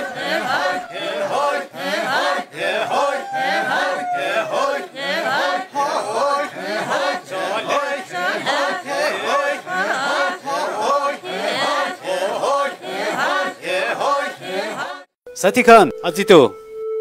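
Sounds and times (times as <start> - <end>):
group singing folk chant: 0.0 - 15.2.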